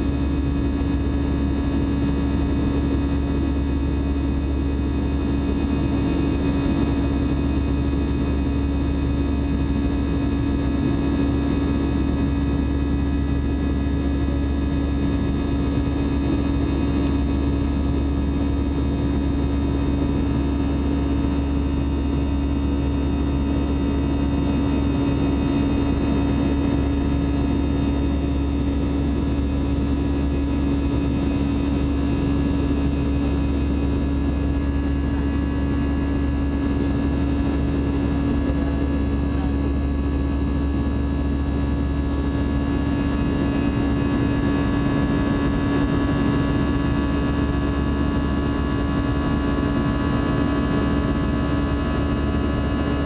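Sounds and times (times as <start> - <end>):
jet engine drone in cabin: 0.0 - 53.0.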